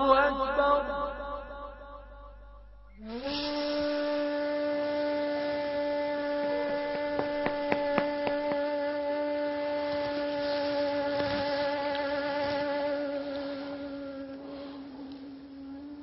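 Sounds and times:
low sustained film music drone: 0:00.4 - 0:16.0
sharp taps: 0:06.9 - 0:08.7.

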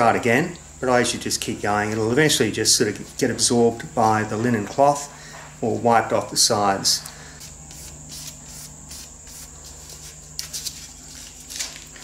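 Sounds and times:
polishing pad rubbing on wood: 0:07.4 - 0:11.3.

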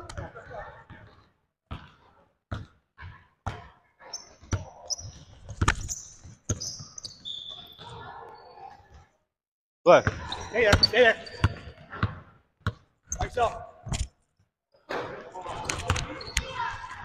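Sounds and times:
sneaker squeaks: 0:03.5 - 0:09.1, 0:10.0 - 0:12.2, 0:13.0 - 0:14.1, 0:14.8 - 0:17.0.

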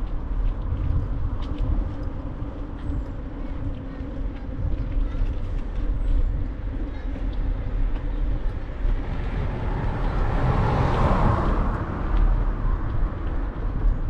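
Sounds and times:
wind and road noise rumble: 0:00.0 - 0:14.0
car passing by: 0:08.7 - 0:13.9.

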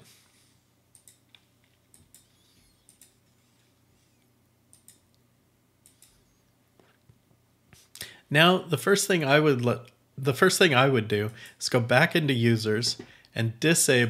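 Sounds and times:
computer mouse clicks: 0:00.9 - 0:03.6, 0:04.7 - 0:05.2, 0:05.8 - 0:06.3.

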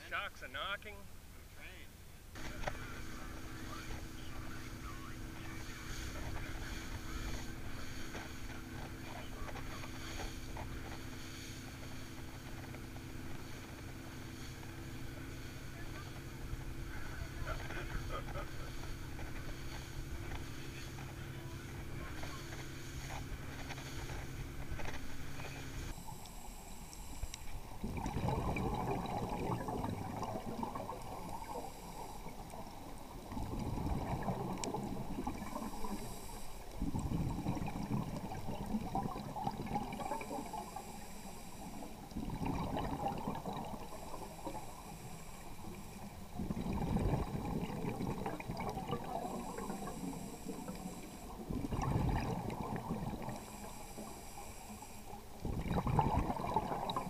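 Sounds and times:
bubbly exhaled air underwater: 0:02.4 - 0:57.0
regulator inhalation hiss: 0:25.3 - 0:27.8, 0:31.2 - 0:33.1, 0:35.5 - 0:36.8, 0:40.1 - 0:42.1, 0:49.2 - 0:51.5, 0:53.3 - 0:55.4.

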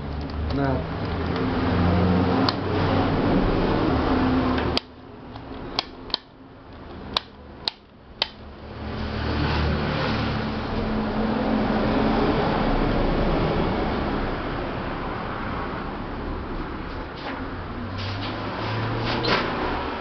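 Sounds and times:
sharp switch clicks: 0:04.6 - 0:06.4, 0:07.1 - 0:08.4.

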